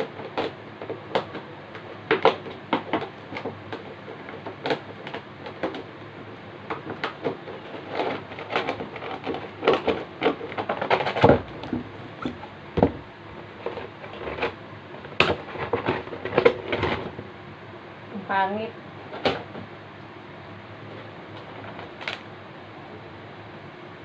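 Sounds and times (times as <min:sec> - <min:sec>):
plastic packaging crinkling: 0:21.0 - 0:22.3.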